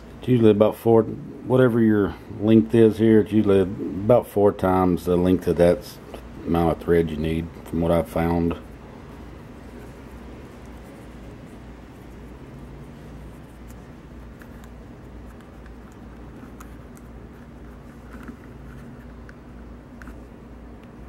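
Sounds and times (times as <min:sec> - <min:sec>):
steady low hum: 0:00.0 - 0:21.0
needle and thread through leather: 0:08.5 - 0:20.4.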